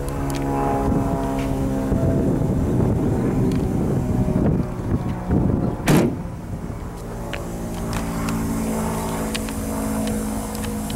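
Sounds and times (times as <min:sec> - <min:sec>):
car boot lid thud: 0:05.8 - 0:06.2.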